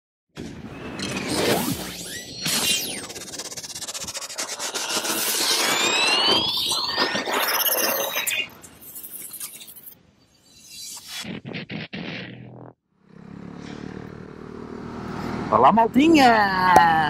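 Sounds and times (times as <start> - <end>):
electric crackling: 0.4 - 12.8
rising whistling sweeps: 0.7 - 11.2.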